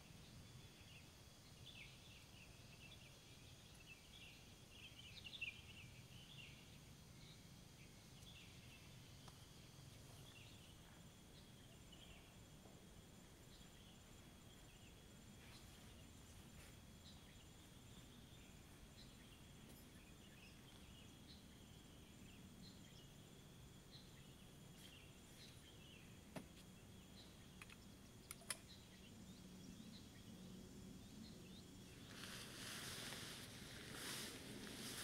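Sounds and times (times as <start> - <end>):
faint insect drone: 0.0 - 35.0
sharp clicks: 27.6 - 28.7
broad hiss: 31.8 - 35.0.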